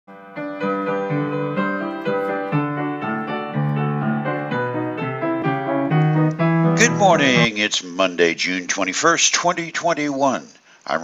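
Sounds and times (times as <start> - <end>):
piano music: 0.1 - 7.6.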